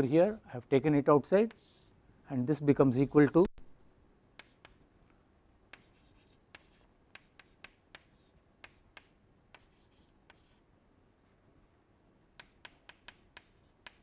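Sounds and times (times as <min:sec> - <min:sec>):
chalk tapping and scraping: 0:01.4 - 0:02.0, 0:04.3 - 0:04.9, 0:05.7 - 0:10.6, 0:12.4 - 0:14.0.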